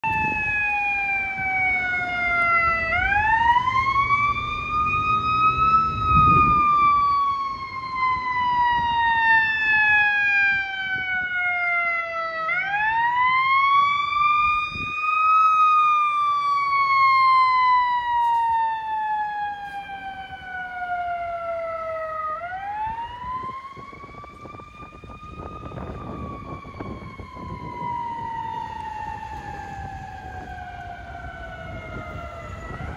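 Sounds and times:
fire engine siren wailing: 0.0s - 32.9s
low traffic rumble: 0.0s - 32.9s.

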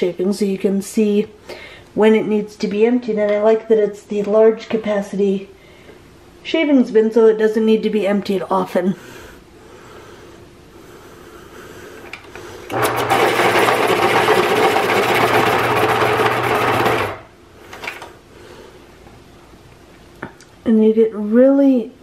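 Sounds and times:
steady hum: 0.0s - 21.0s
electric pencil sharpener grinding: 12.7s - 17.3s.

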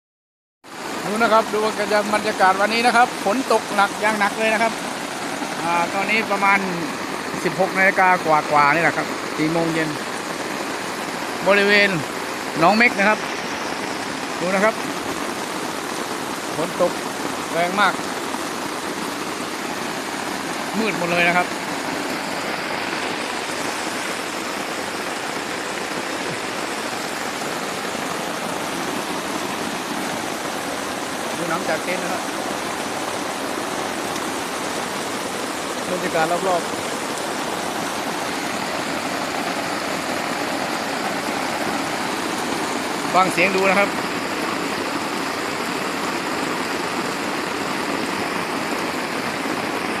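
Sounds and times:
heavy rain pouring: 0.6s - 50.0s.

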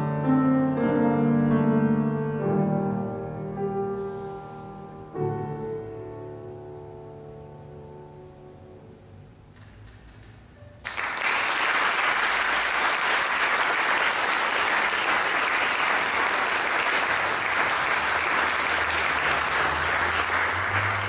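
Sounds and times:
audience applauding: 10.8s - 21.0s.

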